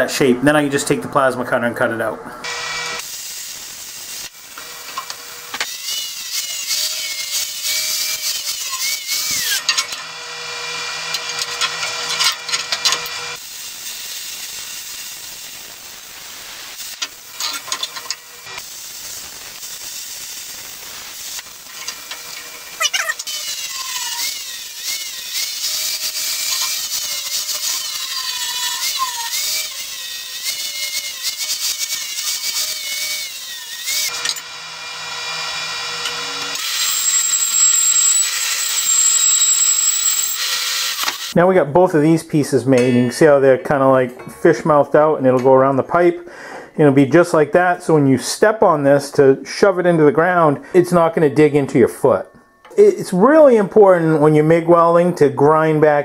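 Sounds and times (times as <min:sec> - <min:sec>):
plasma cutter hissing and whining: 0:02.9 - 0:10.0, 0:11.6 - 0:34.7, 0:36.0 - 0:41.4.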